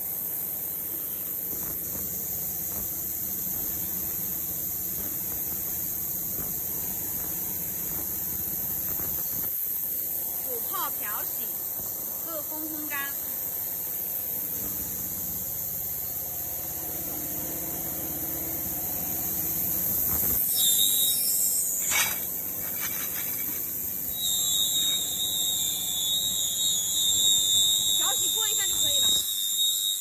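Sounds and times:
high-pitched whine: 3.5 - 30.0
sharper tone: 20.5 - 30.0.

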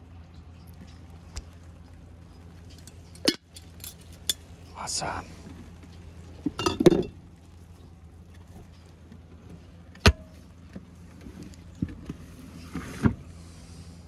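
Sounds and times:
steady low hum: 0.0 - 14.0
glass jar clattering: 6.6 - 7.2.

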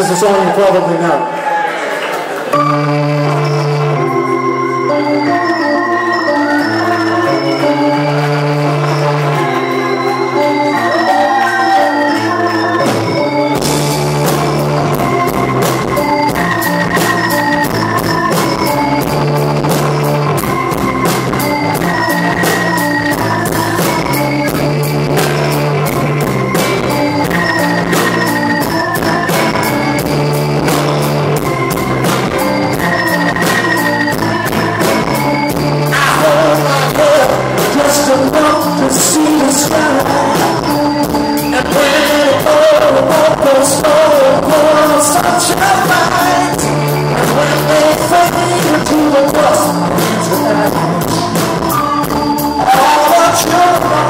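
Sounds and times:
organ chords: 2.2 - 54.0
live rock band playing: 2.4 - 54.0
man singing: 35.8 - 54.0.

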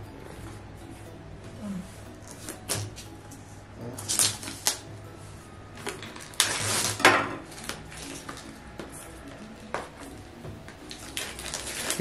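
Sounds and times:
packaging scraping rustle: 5.8 - 8.6, 10.9 - 12.0.

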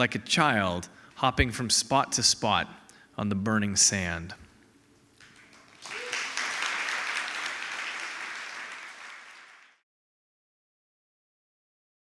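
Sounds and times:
audience applauding: 5.2 - 9.8.

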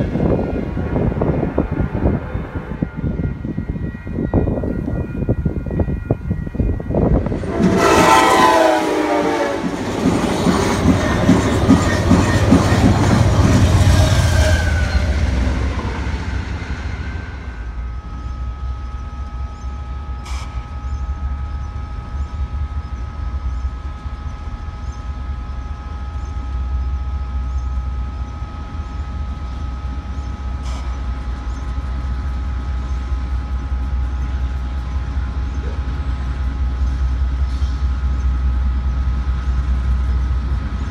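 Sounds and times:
diesel locomotives rumbling: 0.0 - 40.9
passenger train rushing past: 0.0 - 40.9
train horn: 6.9 - 11.1, 11.8 - 31.2
faint steady whine: 16.5 - 40.8.

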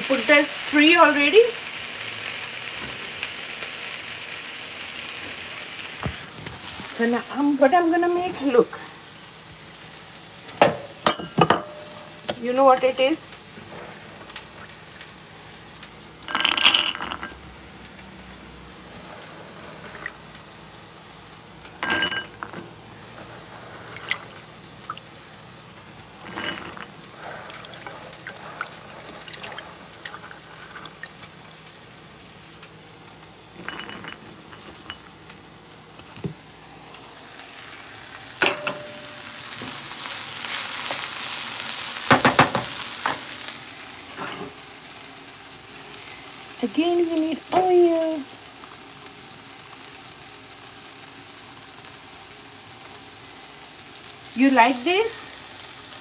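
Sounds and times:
okra sizzling in a pan: 0.0 - 56.0
water sloshing in a pot: 21.8 - 25.2, 25.9 - 31.4.

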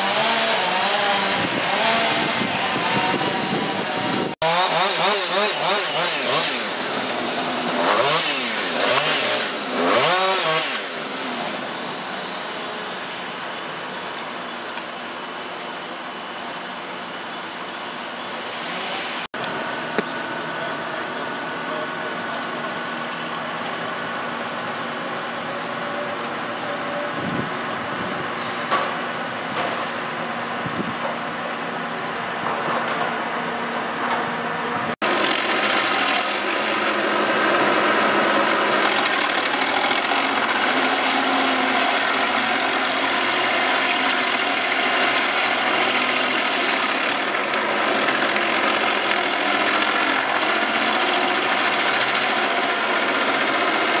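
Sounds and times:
stump grinder grinding: 0.0 - 12.3, 35.0 - 54.0.

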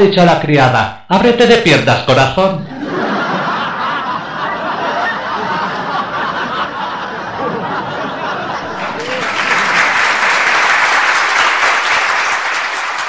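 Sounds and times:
audience laughing: 2.7 - 13.0.

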